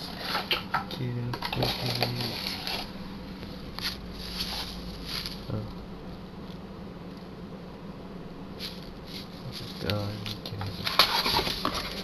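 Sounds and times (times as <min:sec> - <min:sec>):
packing material rustling: 0:03.8 - 0:05.7.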